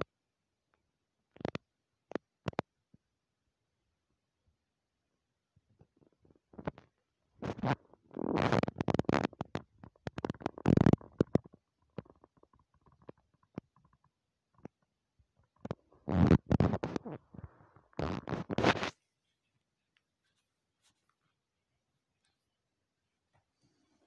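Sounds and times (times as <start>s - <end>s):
hand rubbing phone microphone: 15.6s - 21.5s.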